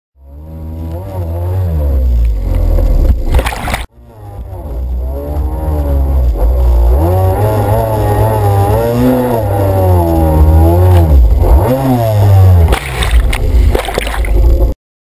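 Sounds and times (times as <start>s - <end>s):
jet ski engine revving: 0.2s - 14.8s
water splashing: 3.1s - 3.9s, 12.7s - 14.7s.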